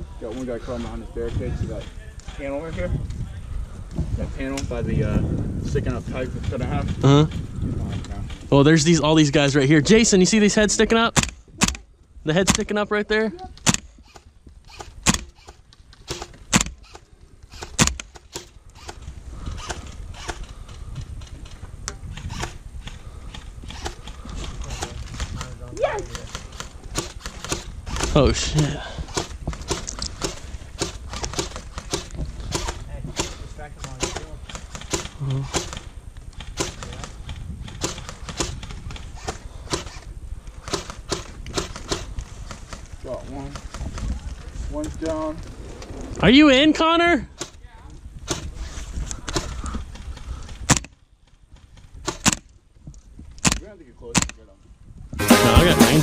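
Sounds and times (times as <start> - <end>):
airsoft rifle shots: 11.1 - 11.8, 12.4 - 12.8, 13.6 - 19.0, 29.1 - 40.0, 52.0 - 52.5.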